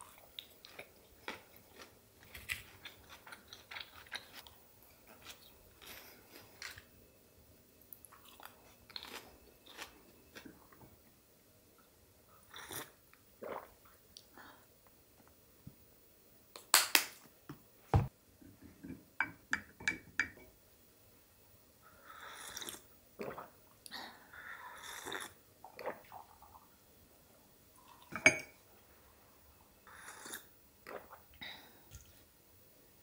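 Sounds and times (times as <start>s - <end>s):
teacup and spoon clinking: 28.1s - 28.5s.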